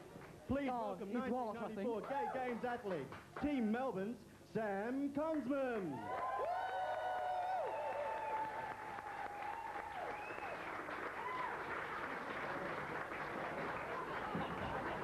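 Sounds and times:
audience applauding: 5.9s - 15.0s.

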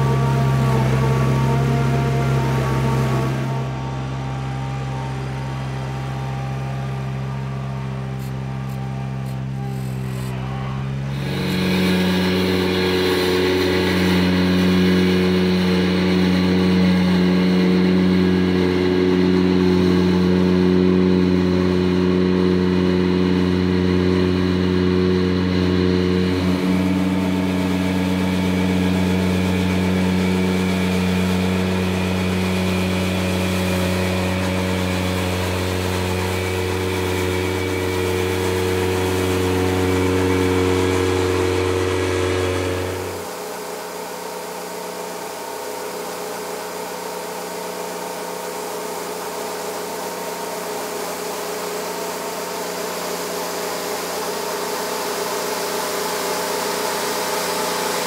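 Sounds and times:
tractor engine humming: 0.0s - 43.8s.

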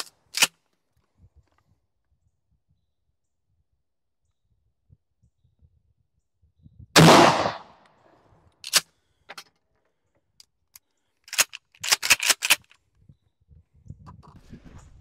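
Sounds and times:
shotgun shot: 7.0s - 7.8s.

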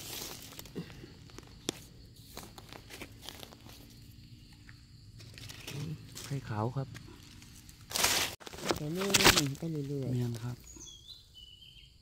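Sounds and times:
dry leaves rustling and crackling: 0.0s - 4.0s, 5.2s - 10.5s.

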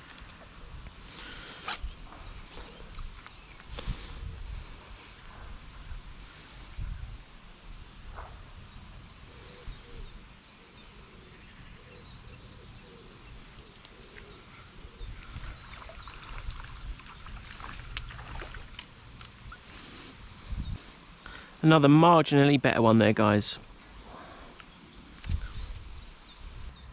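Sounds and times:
low wind rumble on microphone: 0.0s - 21.2s, 24.0s - 26.9s
small birds chirping: 8.2s - 22.1s, 22.7s - 26.9s
water splashes: 15.5s - 19.3s.

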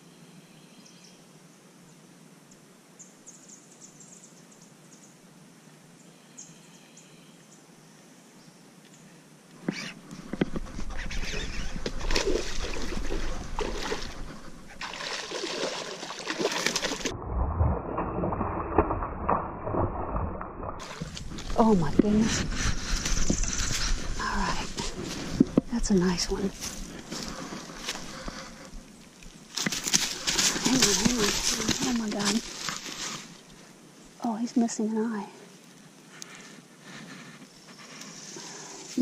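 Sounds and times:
faint bird chirps: 6.0s - 10.0s, 10.9s - 11.8s
fish splashing at the surface: 11.9s - 21.2s.

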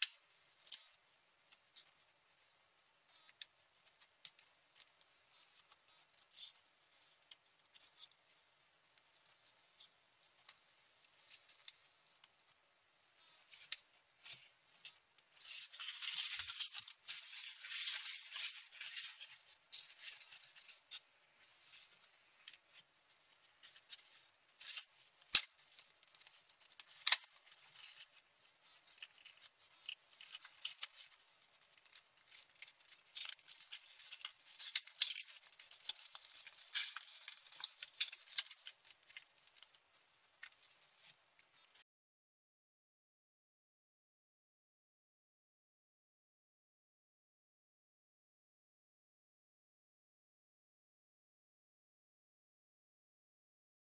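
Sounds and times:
paper rustling and creasing: 13.3s - 41.8s.

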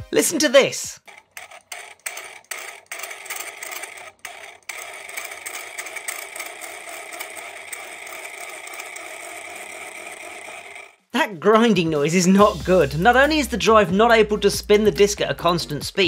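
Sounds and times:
floppy disk drive grinding: 1.0s - 11.1s.

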